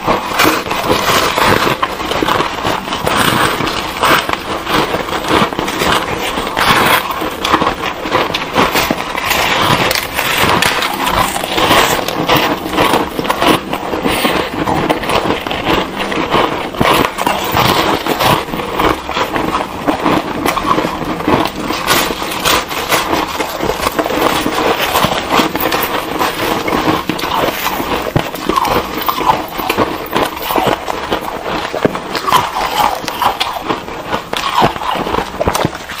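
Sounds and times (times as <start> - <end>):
ice being crunched and chewed: 0.0 - 36.0.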